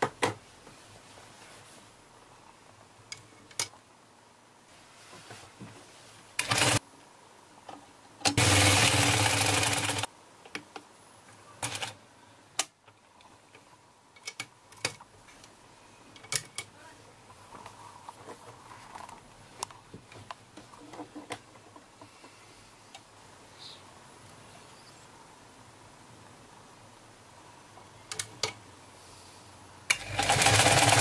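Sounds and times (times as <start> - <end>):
sewing machine running: 6.4 - 6.8, 8.4 - 10.1, 29.9 - 31.0.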